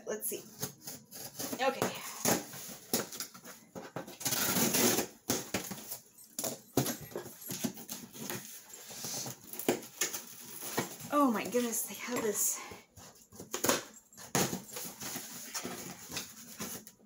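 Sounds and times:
cardboard and tape scraping: 0.3s - 5.6s.

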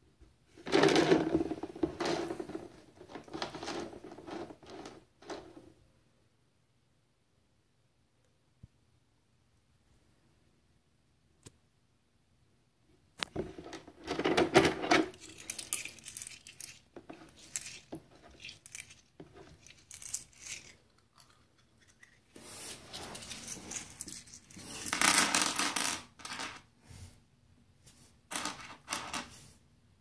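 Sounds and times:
metal bits clinking and rattling: 13.6s - 22.3s, 22.9s - 26.6s.

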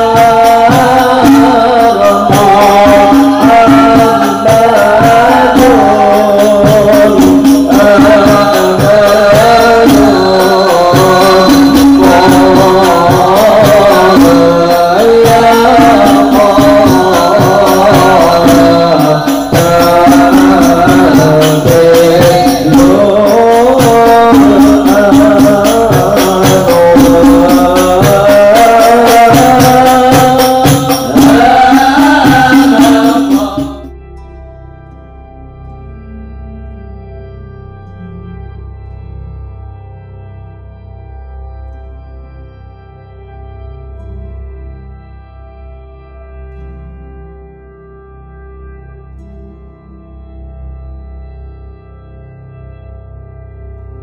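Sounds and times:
frame drums beating: 0.0s - 33.9s
men singing devotional song: 0.0s - 34.0s.

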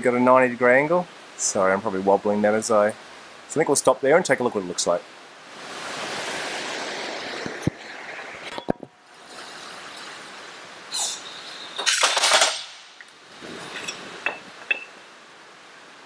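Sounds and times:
metal plate scraping: 13.4s - 14.9s.

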